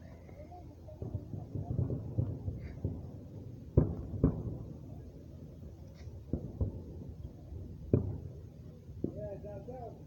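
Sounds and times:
fireworks exploding: 0.9 - 5.0, 6.1 - 8.4.

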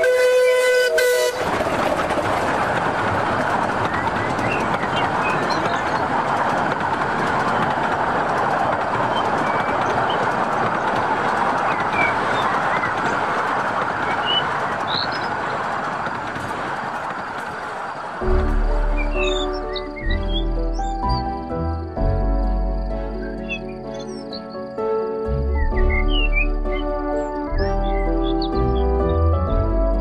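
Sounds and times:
model train rolling on track: 0.0 - 21.0
bird chirps: 18.9 - 21.4, 23.2 - 24.7.

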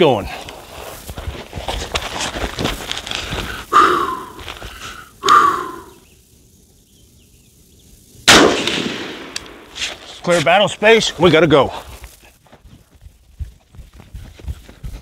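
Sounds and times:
scuffing on gravel and rubber mat: 0.0 - 3.6, 9.8 - 15.0
rifle shot: 8.3 - 9.6.

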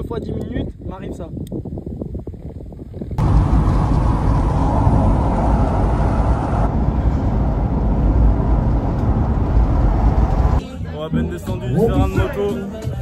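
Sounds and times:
vehicle cabin road noise: 3.2 - 10.6.

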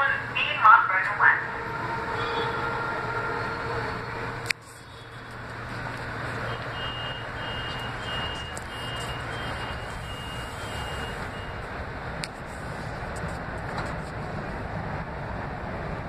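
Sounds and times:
standing train hum: 0.0 - 16.0.

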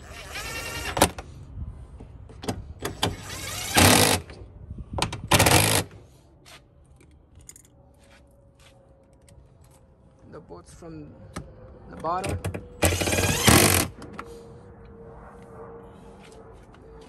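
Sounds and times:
impact driver motor whine: 12.8 - 14.0.

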